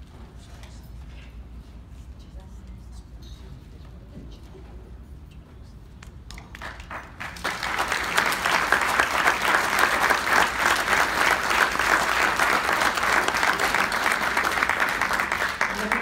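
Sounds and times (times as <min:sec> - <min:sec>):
crowd applauding: 0:06.5 - 0:16.0.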